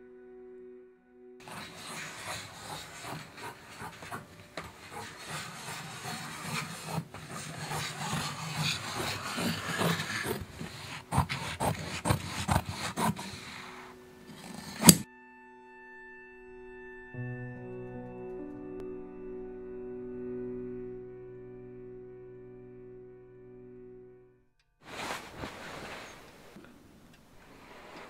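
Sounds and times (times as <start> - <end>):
scissors snipping cloth: 1.4 - 15.1
sailcloth rustling: 24.8 - 26.6, 27.4 - 28.0.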